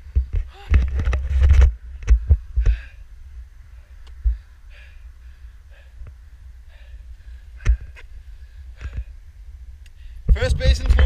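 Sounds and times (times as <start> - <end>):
wind rumbling on microphone: 0.0 - 11.0
man breathing hard: 2.2 - 10.3.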